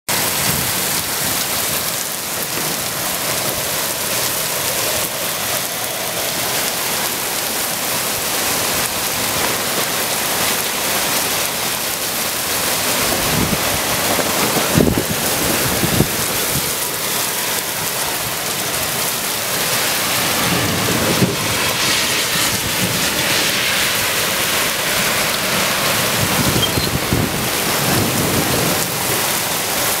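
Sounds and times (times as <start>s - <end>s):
heavy rain on pavement: 0.1s - 30.0s.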